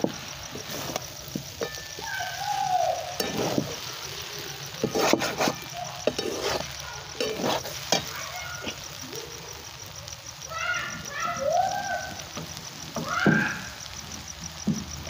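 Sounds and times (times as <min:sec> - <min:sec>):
light sizzle: 0:00.0 - 0:15.0
metal spatula scraping a pan: 0:00.1 - 0:02.4, 0:03.1 - 0:08.8.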